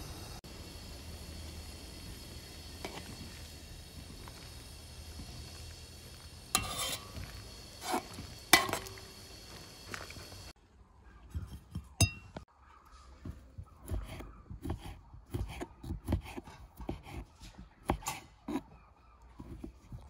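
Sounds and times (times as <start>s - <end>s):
ringing clink: 12.0s - 12.4s.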